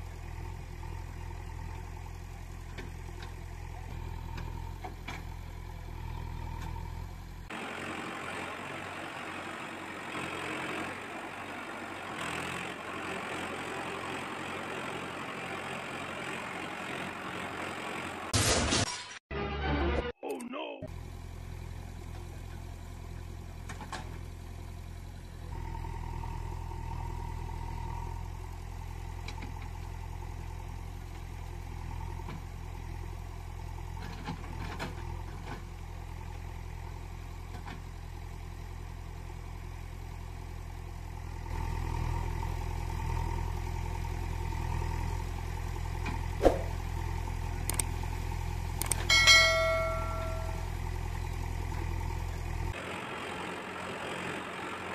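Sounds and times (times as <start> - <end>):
engine idling: 20.9 - 54.9
sharp click: 47.7 - 47.9, 48.8 - 49.1
short bright chime: 49.1 - 50.7.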